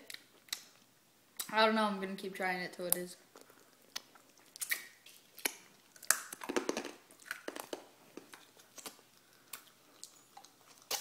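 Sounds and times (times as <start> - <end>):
mouth clicks sucking candy: 3.3 - 6.6.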